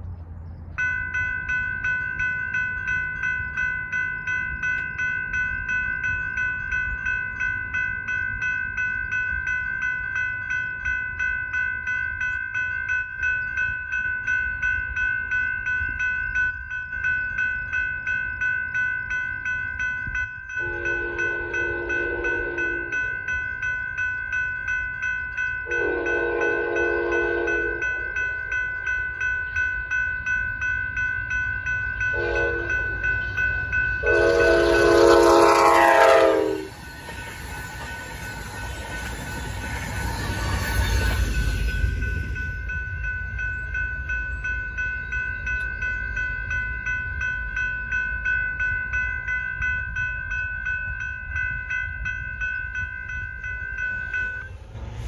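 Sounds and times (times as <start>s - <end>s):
train wheels rumbling: 0.0s - 55.0s
railroad crossing bell ringing: 0.1s - 55.0s
train horn blasts: 20.6s - 23.0s, 25.7s - 28.0s, 32.1s - 33.0s, 34.0s - 36.8s.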